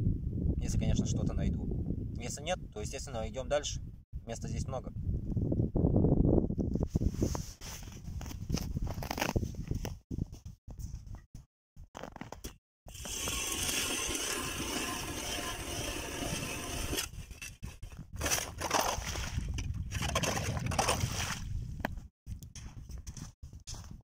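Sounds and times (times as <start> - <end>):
ice auger scraping through ice: 12.9 - 21.4
water and slush churning: 18.2 - 21.5.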